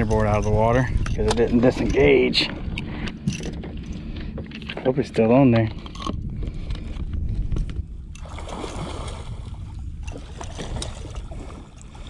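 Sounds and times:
water sloshing beside boat: 0.0s - 12.0s
wind rumble on microphone: 0.0s - 12.0s
fish thrashing in water: 8.2s - 12.0s.

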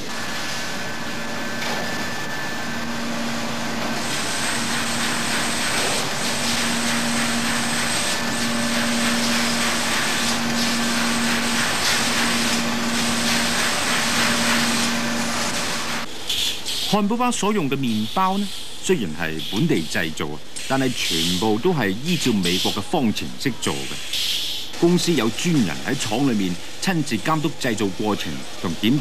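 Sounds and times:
low machine hum: 0.0s - 16.3s
machinery hissing: 0.0s - 29.0s.

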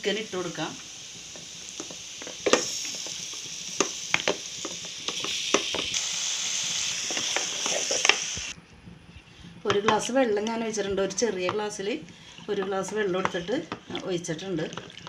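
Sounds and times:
chicken sizzling in hot oil: 0.0s - 8.6s.

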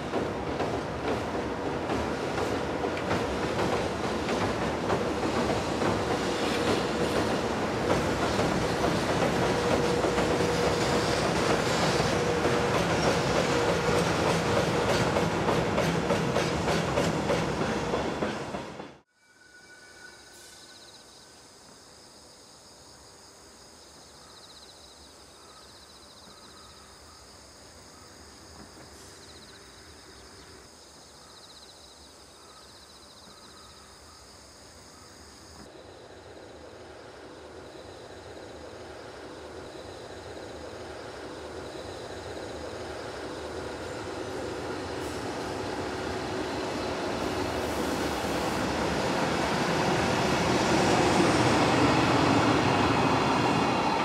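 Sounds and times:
electric locomotive hauling wagons: 0.0s - 20.9s, 35.6s - 54.0s.

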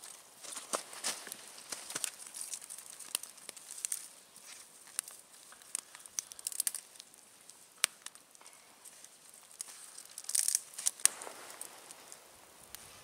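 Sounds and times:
wood fire crackling: 0.0s - 13.0s
sharp pops: 10.2s - 12.9s.

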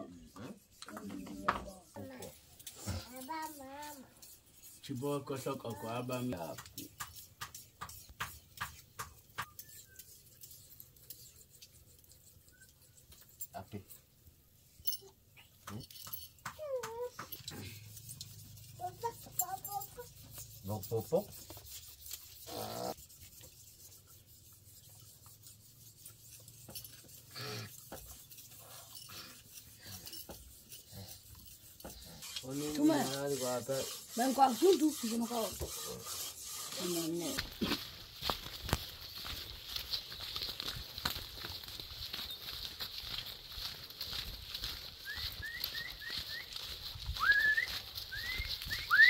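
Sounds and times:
wooden shafts scraping: 17.2s - 49.0s
short rasp: 17.5s - 38.3s.

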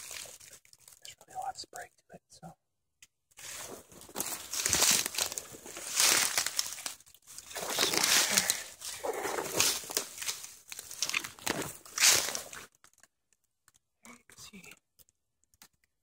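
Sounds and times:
footsteps crunching dry leaves: 0.0s - 0.6s, 3.4s - 12.7s.

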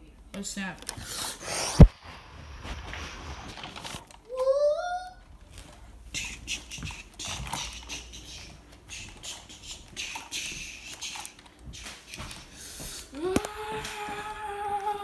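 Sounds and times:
plastic figure handling noise: 2.9s - 4.4s.

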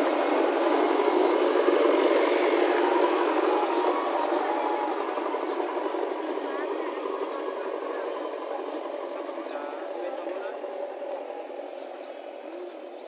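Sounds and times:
backhoe diesel engine running: 0.0s - 13.0s.

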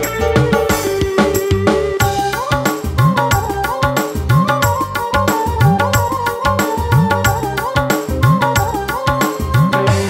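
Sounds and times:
held keyboard note: 0.0s - 2.5s
hand drums with pitch-bending strokes: 0.0s - 10.0s.

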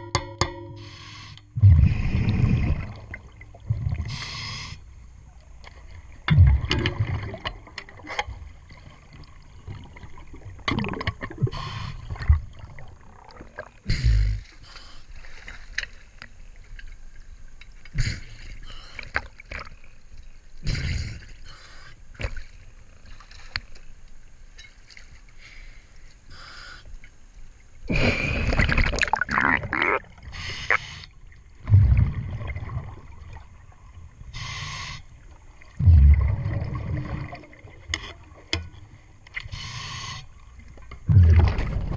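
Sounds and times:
water splashing and sloshing: 0.0s - 26.3s, 27.0s - 41.9s
underwater bubbling: 0.5s - 14.6s, 27.6s - 41.9s.

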